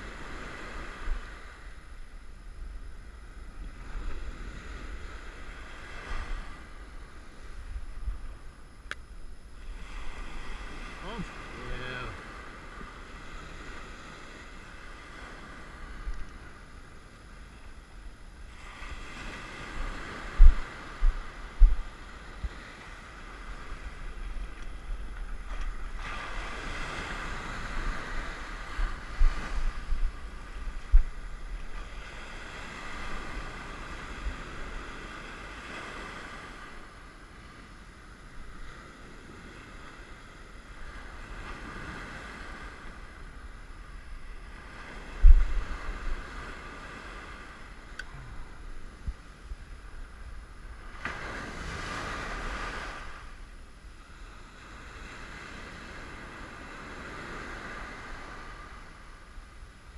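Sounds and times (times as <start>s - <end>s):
ocean surf breaking: 3.1s - 8.6s, 9.3s - 53.5s
wind buffeting microphone: 18.8s - 36.2s, 40.8s - 50.2s.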